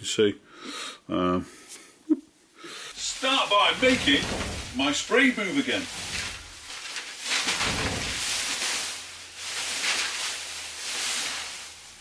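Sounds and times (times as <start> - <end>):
plastic sheeting rustling: 2.9 - 12.0.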